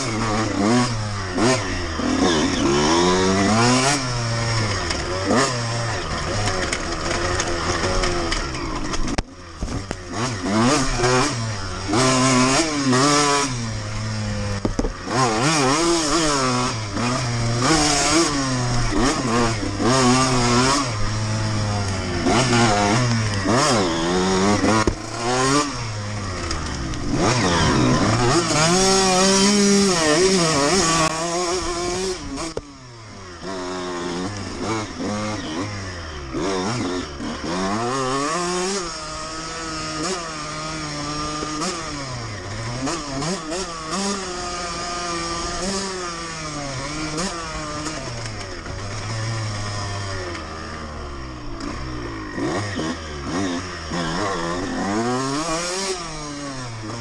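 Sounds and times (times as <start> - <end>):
two-stroke motorcycle engine revving: 0.0 - 57.0.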